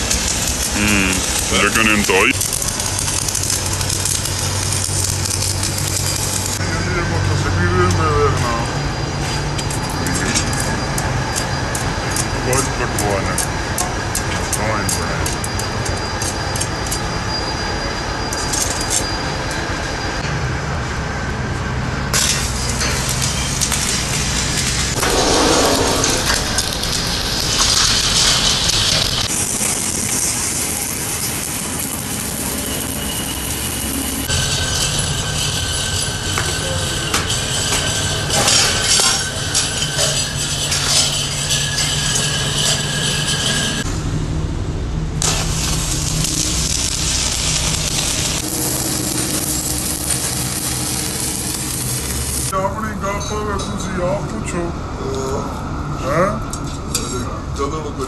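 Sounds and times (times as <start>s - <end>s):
arc welding crackling hiss: 0.0s - 6.6s, 22.2s - 43.8s, 45.2s - 52.5s
arc welding hiss: 0.0s - 6.6s, 45.2s - 52.5s.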